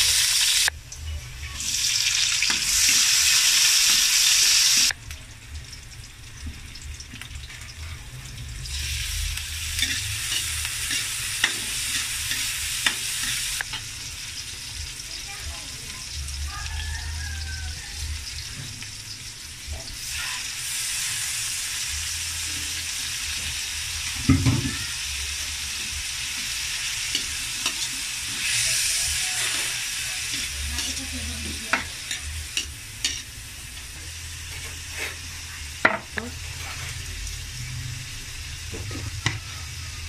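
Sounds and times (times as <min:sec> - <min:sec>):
meat sizzling in a wok: 0:00.0 - 0:40.0
metal spatula scraping wok: 0:08.8 - 0:13.8, 0:27.0 - 0:33.3, 0:36.4 - 0:37.1.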